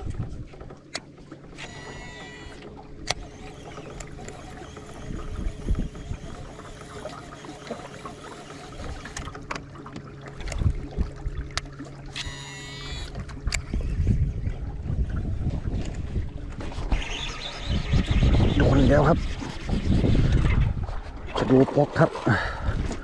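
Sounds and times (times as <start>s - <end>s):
wind buffeting microphone: 0.0s - 0.7s, 4.2s - 6.8s, 10.4s - 11.6s, 13.1s - 21.6s, 22.3s - 23.0s
electric boat motor humming: 0.0s - 20.4s
fishing reel clicks: 1.6s - 7.6s, 12.1s - 13.7s.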